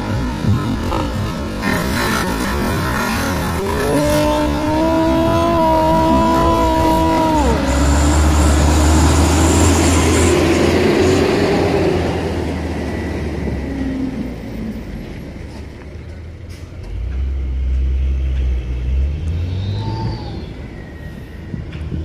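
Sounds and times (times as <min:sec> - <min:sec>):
tyres in mud: 0:00.0 - 0:11.4
diesel truck engine drone: 0:00.0 - 0:22.0
vehicle engine drone: 0:00.0 - 0:22.0.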